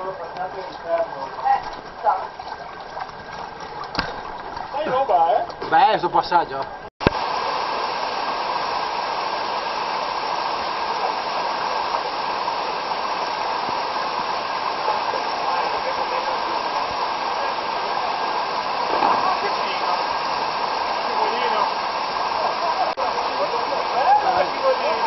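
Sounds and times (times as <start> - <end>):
waterfall roaring: 7.0 - 25.0
white water rushing over rocks: 7.1 - 25.0.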